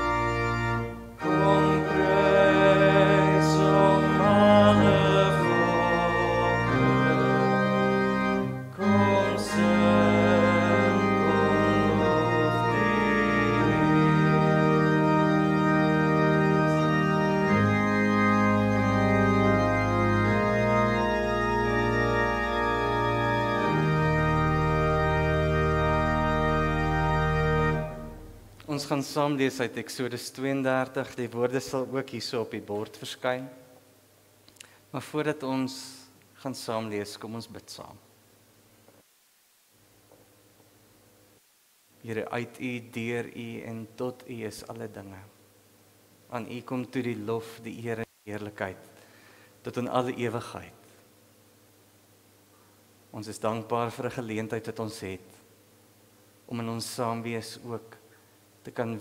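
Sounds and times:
church organ playing hymn chords: 0:00.0 - 0:29.2.

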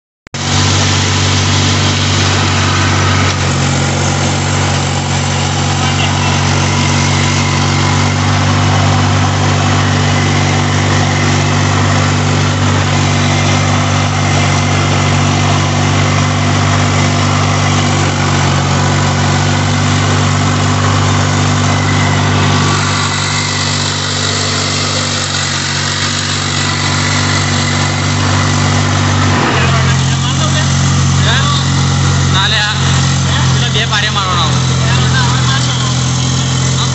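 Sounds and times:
tractor engine running: 0:00.3 - 0:36.9.

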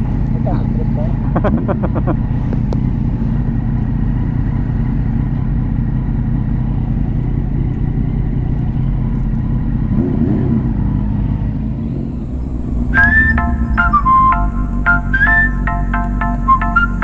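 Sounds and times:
car engine and road noise: 0:00.0 - 0:17.0
rising and falling tone: 0:11.5 - 0:17.0.

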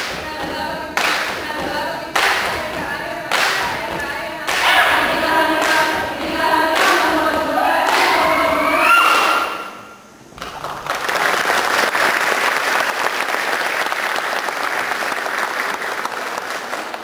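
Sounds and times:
group chanting in unison: 0:00.5 - 0:09.9.

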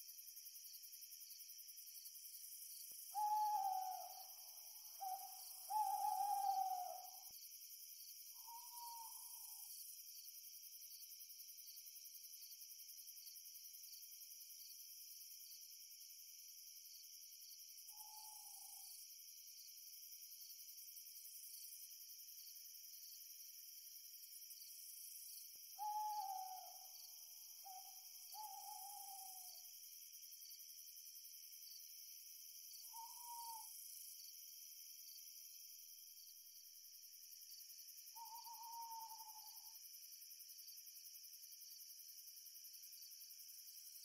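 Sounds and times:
crickets chirping: 0:00.0 - 0:44.0
owl hooting: 0:03.2 - 0:04.2, 0:05.0 - 0:07.2, 0:25.8 - 0:26.9, 0:27.6 - 0:29.5, 0:32.9 - 0:33.7, 0:38.2 - 0:39.6.

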